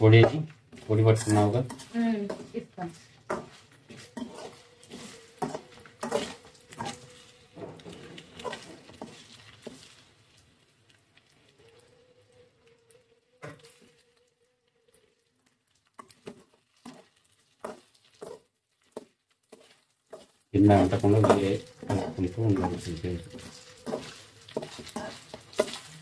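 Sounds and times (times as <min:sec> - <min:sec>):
metal spatula scraping metal pan: 0:00.0 - 0:10.1, 0:16.0 - 0:18.4, 0:19.0 - 0:26.0
food frying: 0:00.0 - 0:26.0.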